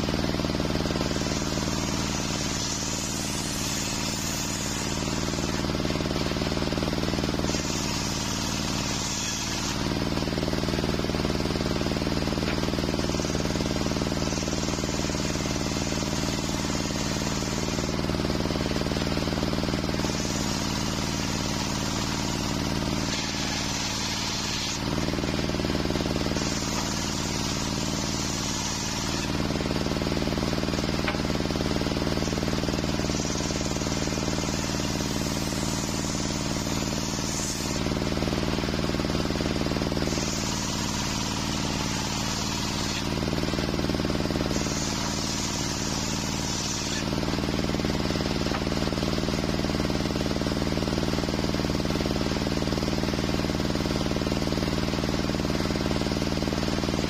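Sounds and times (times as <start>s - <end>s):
saw blade cutting wood: 0.0s - 50.6s
sawmill drive humming: 0.0s - 52.1s.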